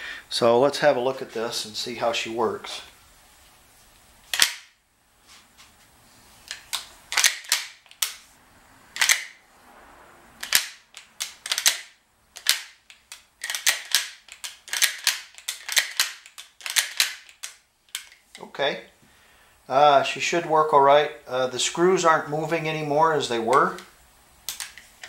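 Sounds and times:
rifle action clacking: 0:04.3 - 0:04.7, 0:06.5 - 0:08.2, 0:09.0 - 0:09.4, 0:10.4 - 0:18.2.

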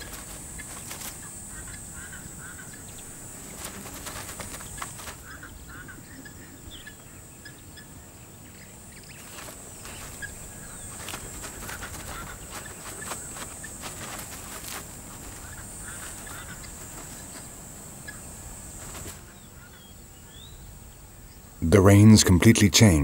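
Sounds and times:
scratches of digging in dirt: 0:00.0 - 0:05.4, 0:09.1 - 0:19.4
steady high hiss: 0:00.0 - 0:23.0.

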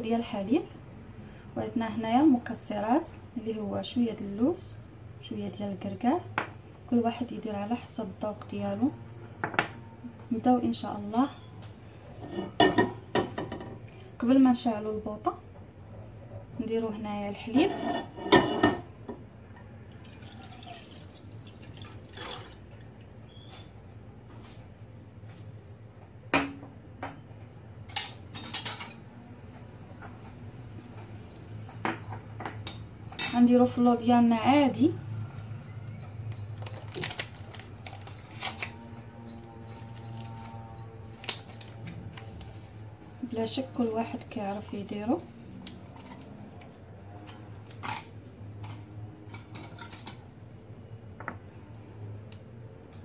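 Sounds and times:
dishes and cutlery clinking: 0:17.6 - 0:18.9, 0:27.9 - 0:29.1, 0:47.3 - 0:50.3
ceramic bowls clattering: 0:17.7 - 0:18.9.

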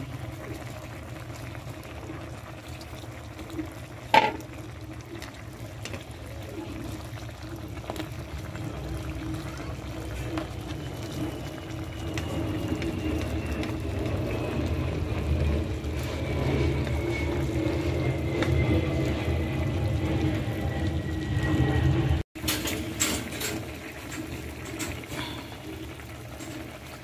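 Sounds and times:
stew bubbling in a cooking pot: 0:00.0 - 0:27.0.

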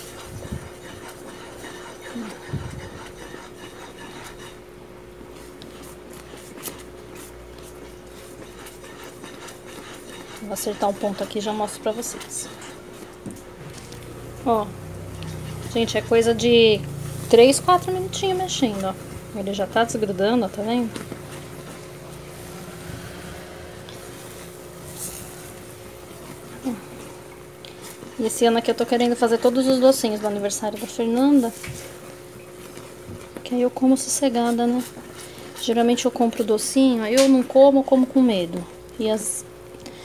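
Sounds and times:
spatula scraping a pan: 0:00.0 - 0:04.7, 0:07.8 - 0:13.2
faint steady hum: 0:00.0 - 0:40.0
mixture bubbling: 0:00.0 - 0:40.0
low hum: 0:13.6 - 0:27.2.

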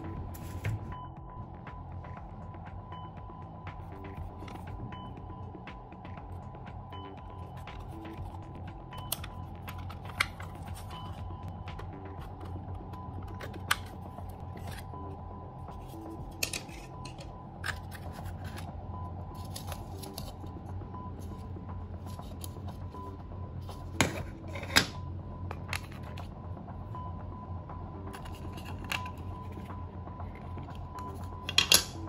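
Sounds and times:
steady low hum: 0:00.0 - 0:32.0
plastic parts clicking and snapping: 0:13.2 - 0:14.0, 0:31.5 - 0:32.0.

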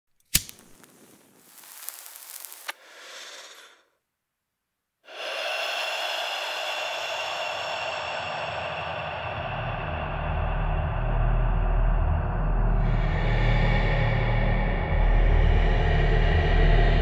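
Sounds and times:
sharp click: 0:00.2 - 0:00.7
breath drawn in: 0:00.4 - 0:04.0, 0:05.0 - 0:14.9
breath out: 0:01.5 - 0:04.0, 0:05.0 - 0:15.0.

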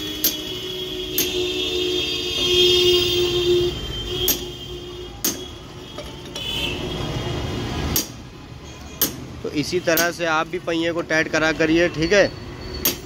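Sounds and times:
hammer striking metal spanner: 0:00.1 - 0:00.5, 0:01.2 - 0:01.4, 0:04.2 - 0:04.6, 0:05.2 - 0:06.5, 0:07.9 - 0:08.2, 0:09.0 - 0:09.3, 0:09.9 - 0:10.2, 0:12.8 - 0:13.0.

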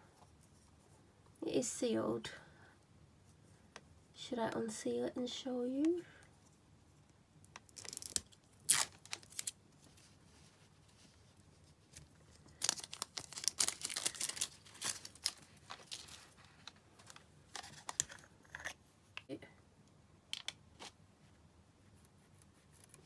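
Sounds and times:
seal crinkling: 0:07.6 - 0:09.6, 0:11.9 - 0:18.8.

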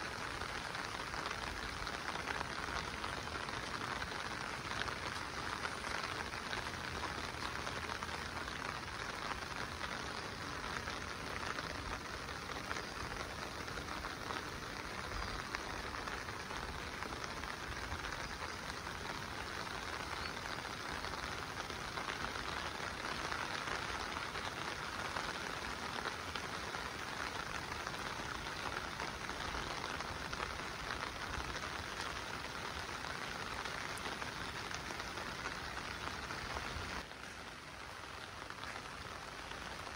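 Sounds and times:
heavy rain falling: 0:00.0 - 0:39.9.

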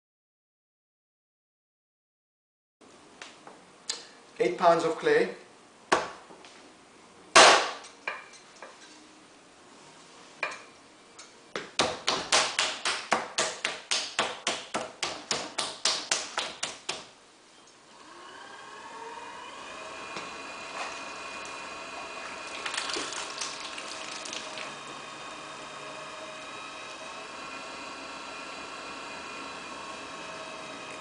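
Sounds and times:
hands slapping clay: 0:11.6 - 0:17.0
motor hum rising in pitch: 0:17.9 - 0:22.6, 0:23.2 - 0:31.0.

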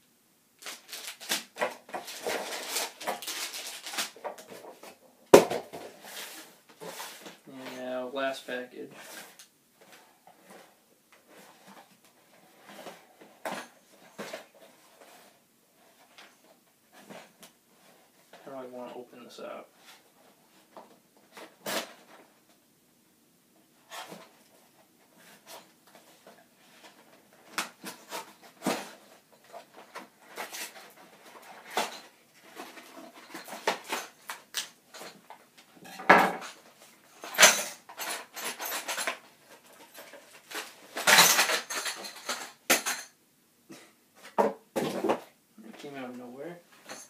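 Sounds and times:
package rustling and tearing: 0:00.6 - 0:04.5.

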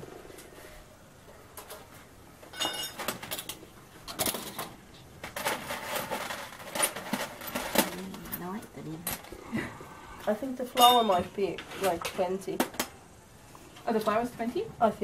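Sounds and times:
metal spoons clinking on tray: 0:02.5 - 0:03.2, 0:10.8 - 0:11.3.

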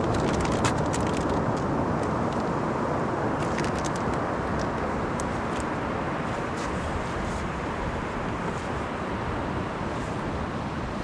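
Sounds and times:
clicks and rattles in plastic box: 0:00.0 - 0:01.7
wind: 0:00.0 - 0:11.0.

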